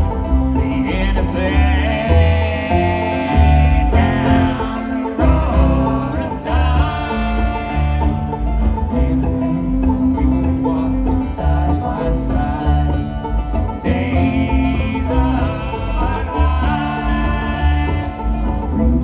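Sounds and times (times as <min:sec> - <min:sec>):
bluegrass band playing: 0:00.0 - 0:19.0.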